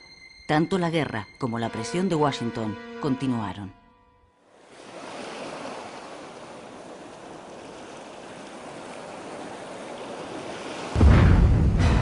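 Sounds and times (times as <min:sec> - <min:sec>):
water waves washing: 0:04.5 - 0:12.0
deep rumbling explosion boom: 0:11.0 - 0:12.0.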